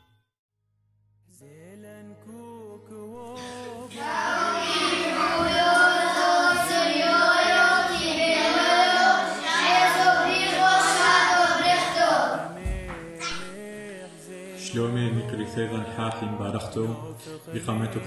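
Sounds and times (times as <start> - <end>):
children singing in unison: 3.4 - 13.6.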